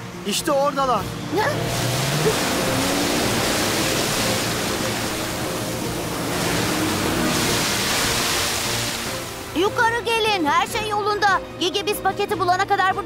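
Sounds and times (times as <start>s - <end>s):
sea water rushing: 1.3s - 10.6s.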